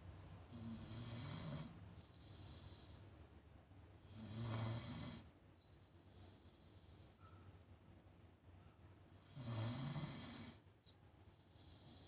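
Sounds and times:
dog snoring: 0:00.5 - 0:03.0, 0:04.0 - 0:05.3, 0:09.2 - 0:10.7, 0:11.3 - 0:12.0.

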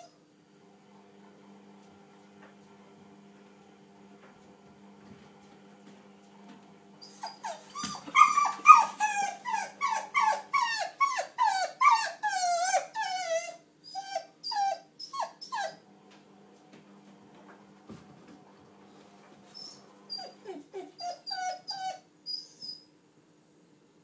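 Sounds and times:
puppy whining: 0:00.0 - 0:00.2, 0:07.0 - 0:15.8, 0:19.5 - 0:22.9.

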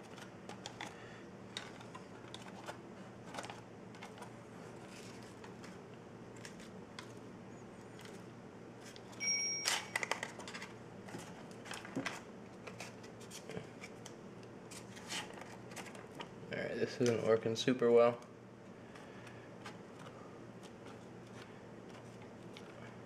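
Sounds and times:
paper rustling: 0:00.0 - 0:05.8, 0:18.9 - 0:23.0
brief high tone: 0:09.2 - 0:10.0.

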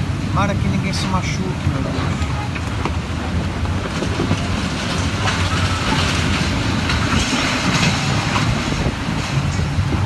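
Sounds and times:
gale-force wind roaring: 0:00.0 - 0:10.0
blowing debris clattering: 0:03.6 - 0:10.0.

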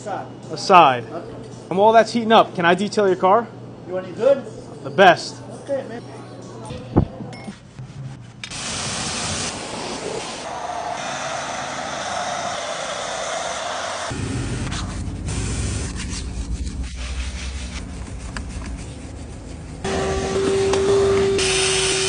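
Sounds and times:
water spray hissing: 0:08.5 - 0:14.1
brushes scrubbing a car: 0:14.7 - 0:20.1.

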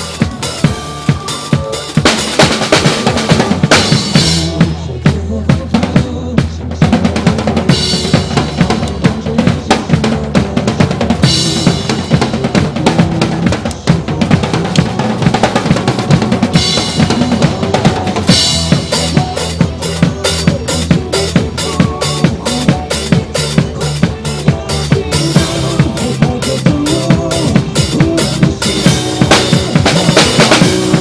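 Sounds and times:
backing track: 0:00.0 - 0:31.0
rock drum beat: 0:00.0 - 0:31.0.

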